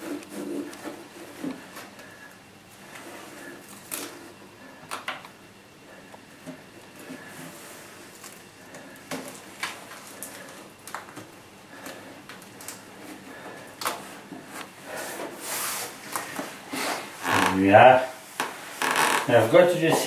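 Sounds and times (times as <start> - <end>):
tape rasping: 13.9 - 17.8, 18.4 - 19.5.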